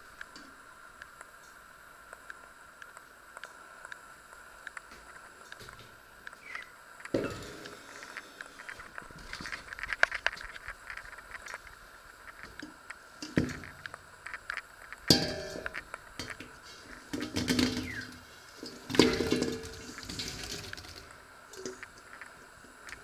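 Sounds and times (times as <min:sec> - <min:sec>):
metal bowl knocking pot: 0:15.1 - 0:15.8, 0:18.9 - 0:19.9.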